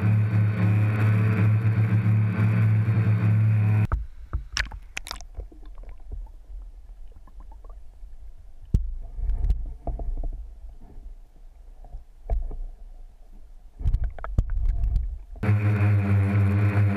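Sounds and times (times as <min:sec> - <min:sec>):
drone rotors humming: 0:00.0 - 0:04.6, 0:05.3 - 0:16.9
low underwater rumble: 0:00.0 - 0:16.9
muffled underwater clicks and knocks: 0:03.9 - 0:07.9, 0:08.6 - 0:15.4.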